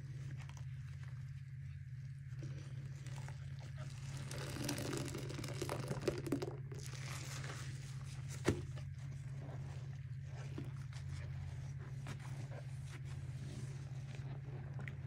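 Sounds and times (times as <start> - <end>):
steady low hum: 0.0 - 15.0
wet sponge squelching: 0.0 - 15.0
liquid streaming into water: 3.9 - 7.6.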